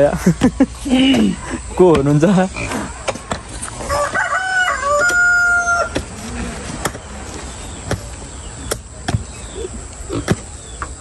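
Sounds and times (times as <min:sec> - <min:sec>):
hoes chopping into earth: 0:00.4 - 0:02.2, 0:05.0 - 0:09.4, 0:10.2 - 0:10.9
rooster crowing: 0:03.8 - 0:06.0.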